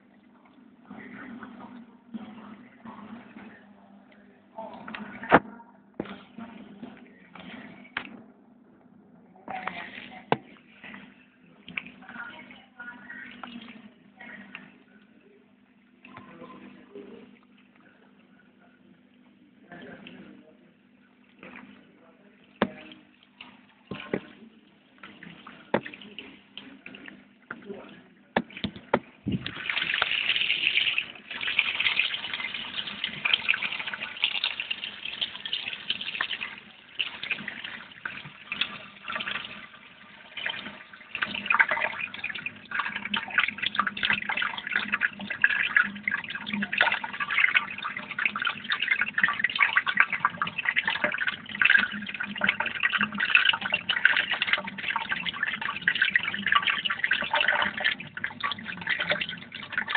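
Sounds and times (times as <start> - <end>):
running water splashing: 9.5 - 15.0, 21.2 - 59.9.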